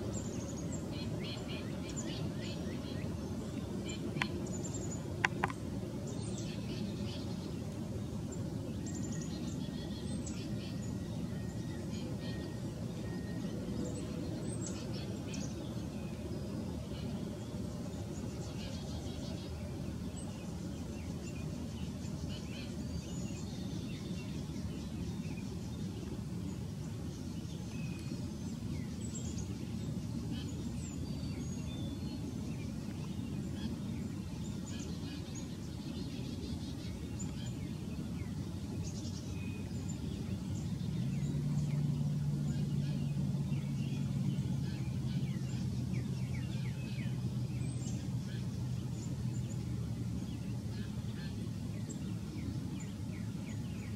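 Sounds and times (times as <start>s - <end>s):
low engine hum: 0.0s - 53.9s
small birds chirping: 0.0s - 53.9s
steady low rumble: 0.0s - 53.9s.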